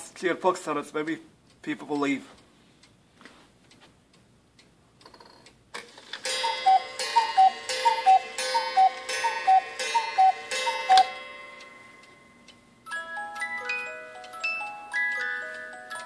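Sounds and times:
clock ticking: 0:00.0 - 0:03.0, 0:06.2 - 0:16.0
cuckoo clock whistle call: 0:06.3 - 0:11.3.

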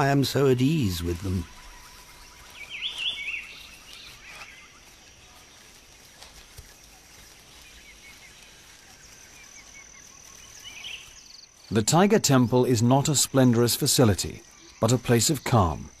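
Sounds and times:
birds chirping: 0:00.0 - 0:16.0
high insect tone: 0:00.0 - 0:16.0.

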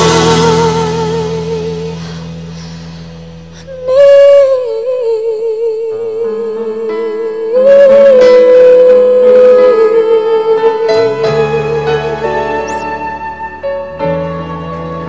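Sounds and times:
person singing with vibrato: 0:00.0 - 0:13.5
soft instrumental backing: 0:08.4 - 0:15.0.

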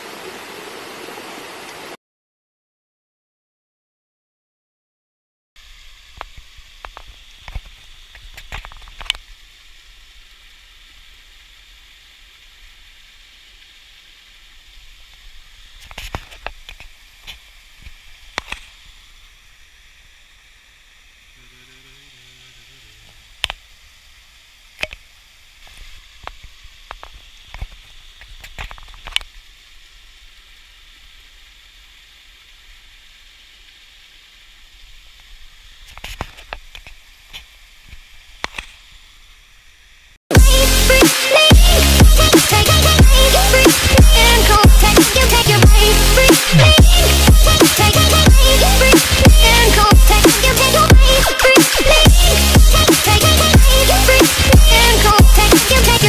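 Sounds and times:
creek trickling over rocks: 0:00.0 - 0:02.0, 0:05.6 - 0:39.3.

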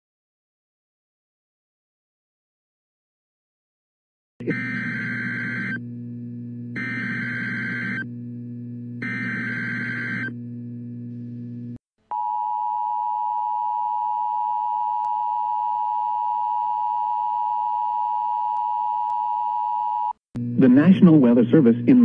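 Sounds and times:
hum: 0:04.4 - 0:19.8, 0:20.4 - 0:22.0.

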